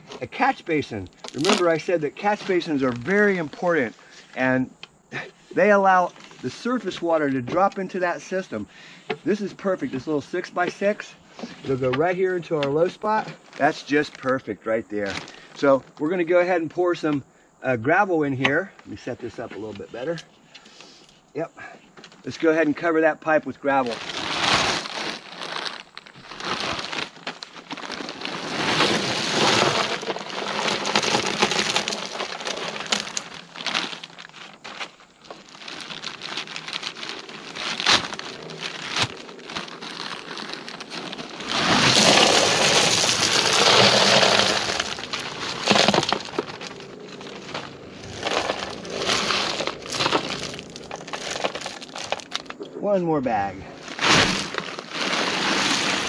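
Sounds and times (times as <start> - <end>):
stones shifted by hand: 0.0 - 4.5, 23.7 - 52.6, 53.8 - 56.0
gravel poured from a bag: 0.3 - 4.5, 23.7 - 52.6, 53.8 - 56.0.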